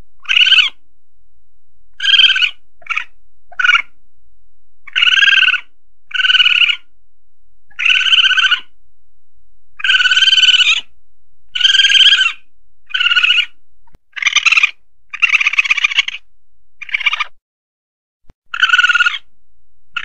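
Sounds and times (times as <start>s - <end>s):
civet buzzy trilled calls: 0.2s - 0.8s, 1.9s - 4.0s, 4.8s - 6.9s, 7.7s - 8.8s, 9.8s - 10.9s, 11.5s - 17.4s, 18.4s - 19.3s.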